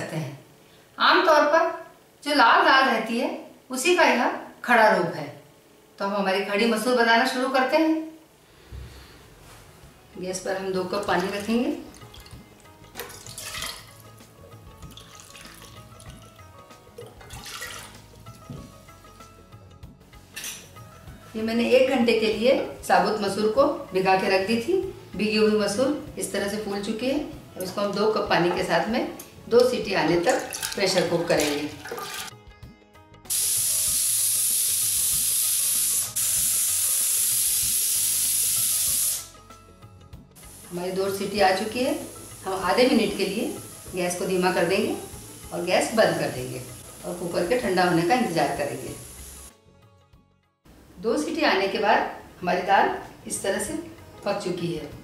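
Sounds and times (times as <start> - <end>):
water pouring into metal pot: 11.0 - 14.2, 14.8 - 18.2, 30.2 - 32.3.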